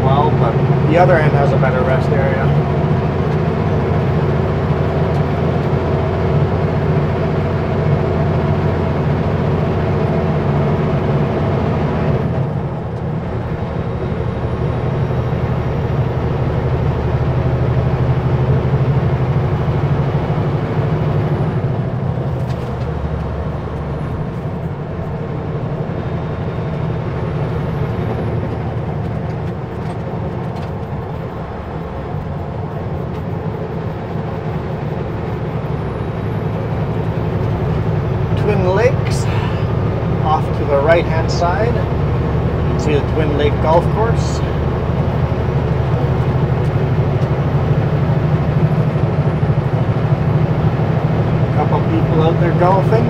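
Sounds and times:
road noise: 0.0 - 53.0
truck diesel engine running: 0.0 - 53.0.

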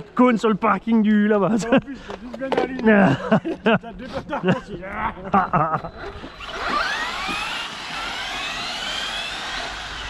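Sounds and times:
electric motor whining: 5.7 - 10.0.

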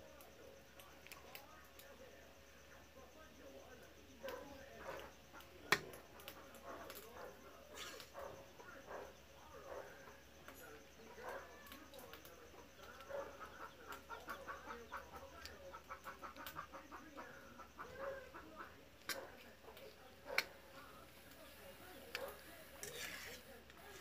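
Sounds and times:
chickens clucking: 12.5 - 22.4.

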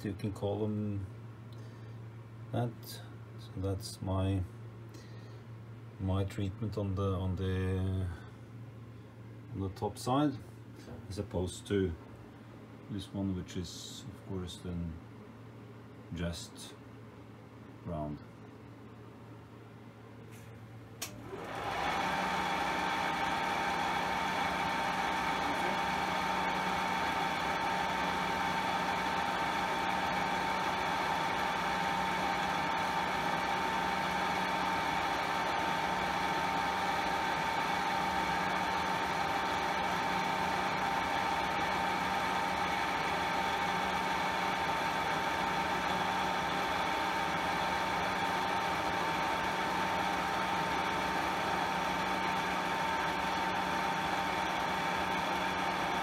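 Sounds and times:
milling machine whine and hum: 21.1 - 56.0.

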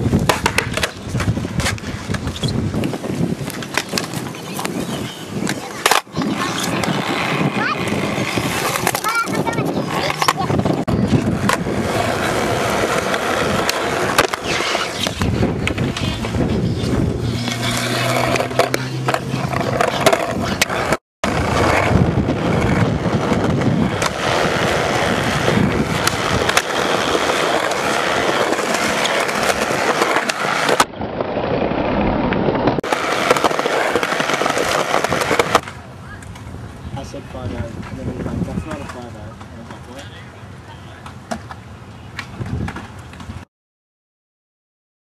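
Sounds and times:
skateboard wheels rolling on concrete: 0.0 - 43.5
skateboard clacks and knocks: 0.1 - 2.9.

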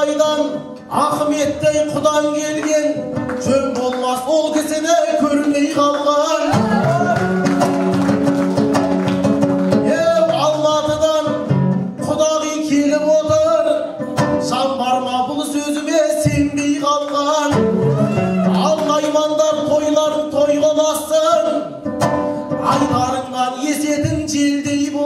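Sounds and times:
man singing into a microphone: 0.0 - 7.4, 9.8 - 21.9, 22.5 - 25.0
people clapping along: 1.9 - 11.0, 16.5 - 19.8
lute playing: 6.3 - 15.0, 17.4 - 23.3.

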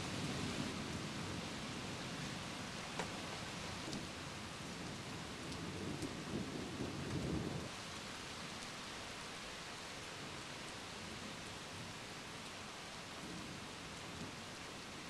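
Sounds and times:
low rumble of thunder: 0.0 - 7.8
steady rain: 0.0 - 15.0.

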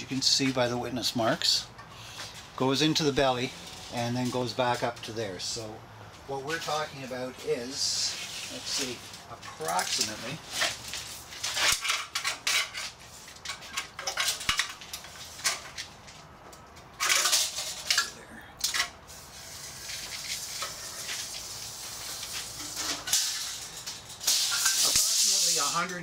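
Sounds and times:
tape measure scraping metal: 3.0 - 5.1, 7.5 - 15.9, 19.1 - 26.0
tape measure clicks and rattles: 16.6 - 26.0.

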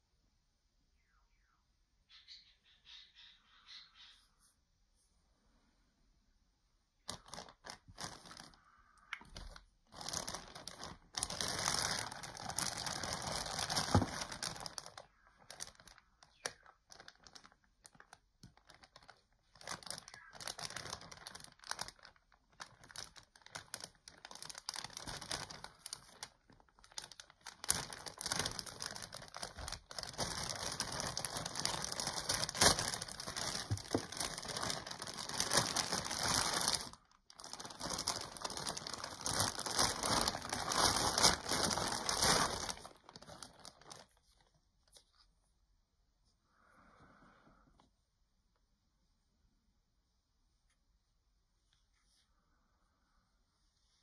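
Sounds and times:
plastic bag crinkling: 7.0 - 45.0.

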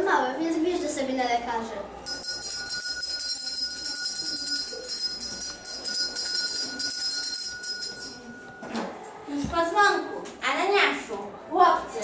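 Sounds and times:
school bell ringing: 2.0 - 9.1.

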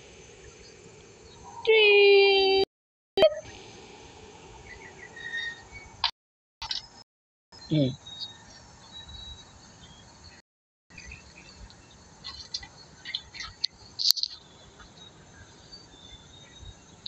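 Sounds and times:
lovebirds chirping: 4.4 - 7.0, 7.6 - 17.0.

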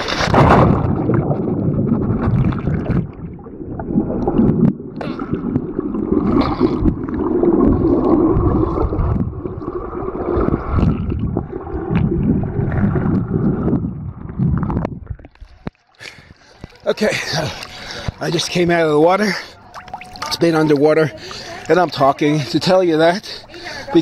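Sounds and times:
muffled underwater rumble: 0.1 - 16.8.

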